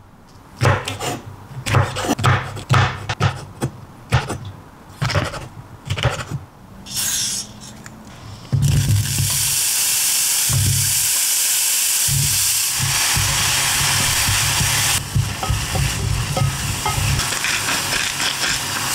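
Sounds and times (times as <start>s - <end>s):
knife chopping on wooden board: 0.6s - 4.4s.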